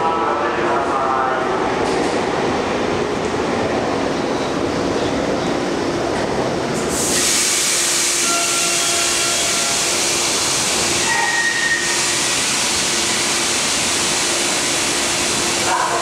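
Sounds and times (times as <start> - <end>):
train air hiss: 6.8 - 16.0.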